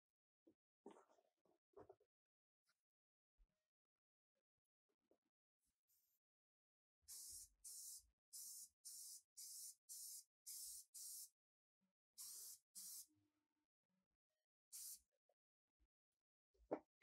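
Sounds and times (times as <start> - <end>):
short hissing strokes: 7.1 - 11.3, 12.2 - 13.0, 14.7 - 15.0.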